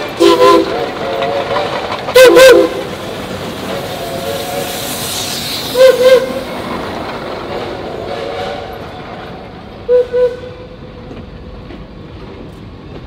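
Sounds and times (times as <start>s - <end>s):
steam hiss: 0.0s - 8.9s
train running noise: 0.0s - 13.0s
steam whistle toots: 0.2s - 0.8s, 2.2s - 2.9s, 4.0s - 6.4s, 9.9s - 10.7s.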